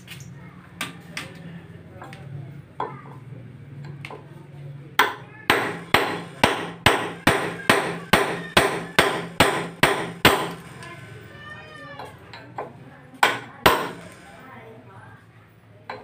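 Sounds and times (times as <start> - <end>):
hammer striking chisel: 5.0 - 11.0, 12.6 - 14.4.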